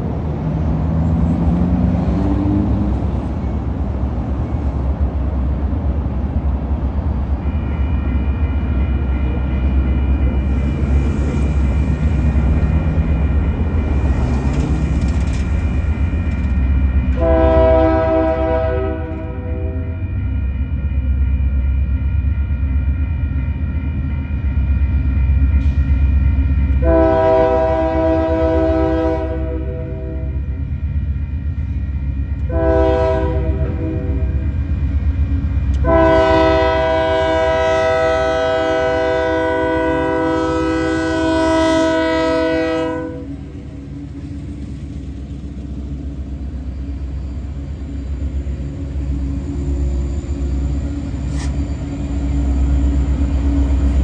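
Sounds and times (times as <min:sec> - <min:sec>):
diesel locomotives running: 0:00.0 - 0:54.0
train air horn blasts: 0:17.1 - 0:20.0, 0:26.8 - 0:30.4, 0:32.4 - 0:34.4, 0:35.7 - 0:43.4.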